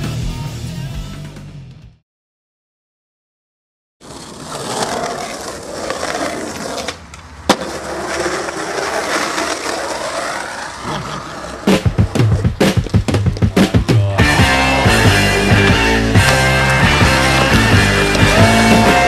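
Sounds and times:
skateboard wheels rolling on asphalt: 4.0 - 13.6, 14.3 - 19.0
skateboard clack: 4.0 - 19.0.

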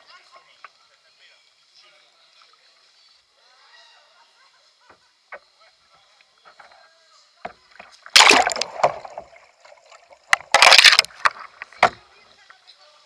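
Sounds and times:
water splashing and rushing: 8.1 - 11.8.

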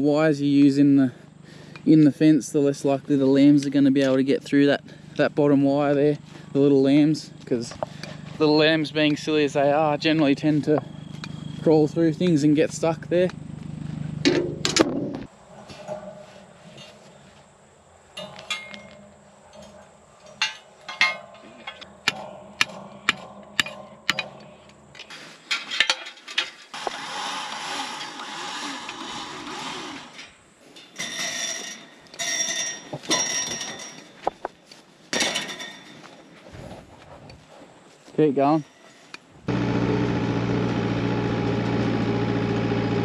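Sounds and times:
metallic clinks of fence wire: 18.2 - 21.8, 30.2 - 34.2
rustling noise: 35.9 - 39.4.

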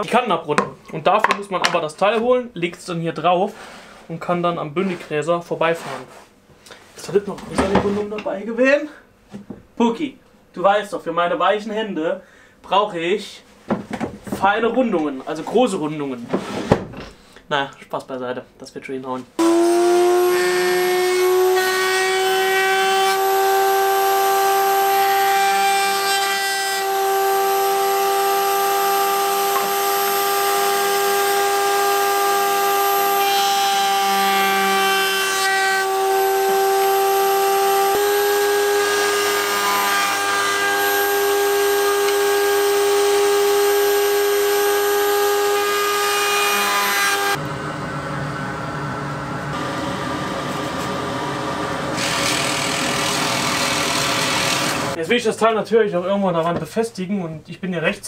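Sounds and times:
drill press boring wood: 19.4 - 47.4, 51.3 - 55.0
router bit cutting wood: 19.4 - 55.0
router whining: 19.4 - 55.0.

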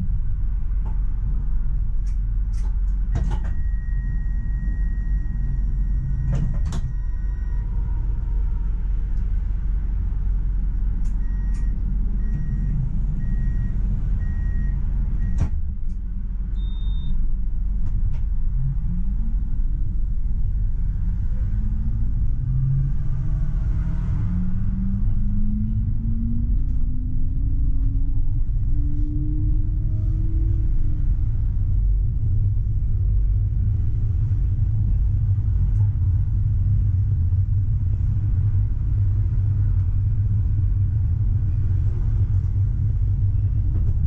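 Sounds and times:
tram running rumble: 0.0 - 44.0
electronic signal tone: 3.4 - 7.9, 11.2 - 15.4, 16.6 - 17.2
repeated beeps: 16.6 - 17.2.

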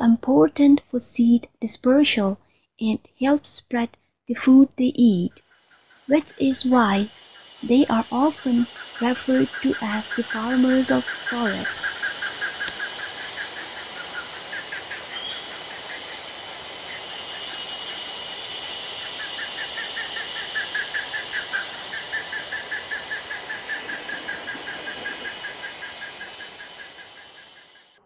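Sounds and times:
high insect drone: 5.3 - 28.0
pulsing trill of calls: 5.4 - 28.0
high bird chirps: 15.0 - 15.6.

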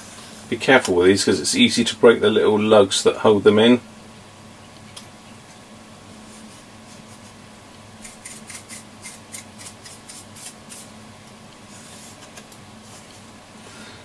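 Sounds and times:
faint steady hum: 0.0 - 14.0
hand tool scratching: 8.0 - 10.9.

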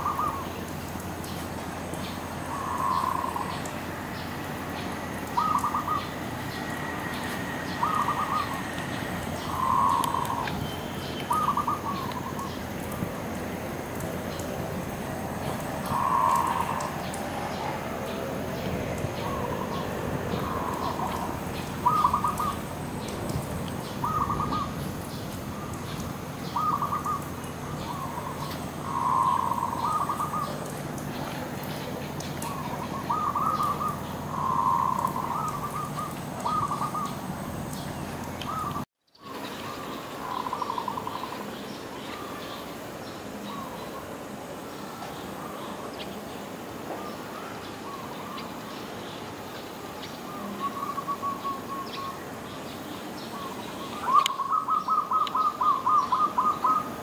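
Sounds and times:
dove cooing: 0.0 - 0.5, 2.5 - 3.6, 5.3 - 6.1, 7.7 - 8.7, 9.4 - 10.5, 11.3 - 12.6, 15.8 - 18.2, 19.2 - 23.1, 24.0 - 25.2, 26.5 - 30.7, 32.5 - 37.2, 54.0 - 57.0.

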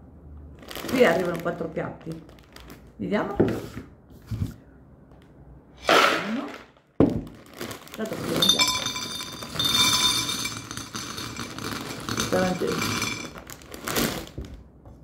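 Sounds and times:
dry pasta clattering onto plate: 8.3 - 14.2.

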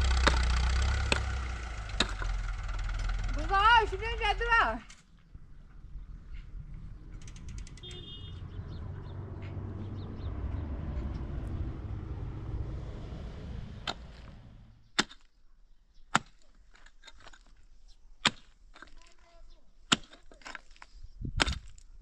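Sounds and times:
pickaxe striking stony ground: 0.2 - 0.5, 1.1 - 2.3, 14.9 - 15.3, 16.1 - 17.6, 18.2 - 19.0, 19.9 - 21.8
low rumble: 5.2 - 14.9.

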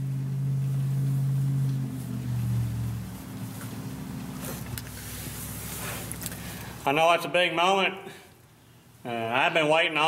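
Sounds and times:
diesel engine running: 0.0 - 6.9.

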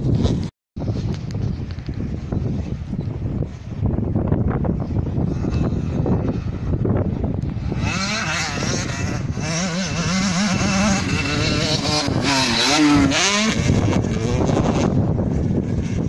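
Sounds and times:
wind rumble on microphone: 0.0 - 16.0
motocross bike engine revving: 5.2 - 16.0.

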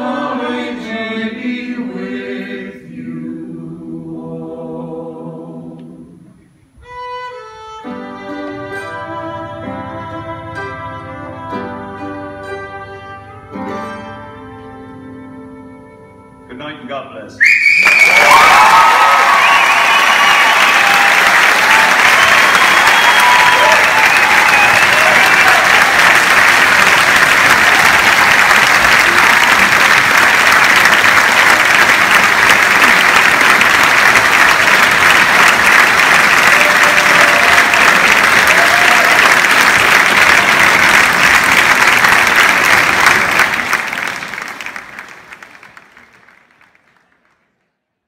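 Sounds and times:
audience applauding: 17.4 - 47.8.

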